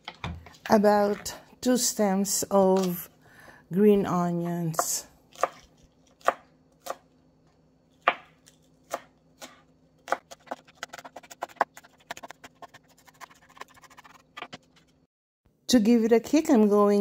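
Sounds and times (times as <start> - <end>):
knife chopping on cutting board: 4.5 - 7.0, 8.0 - 14.6.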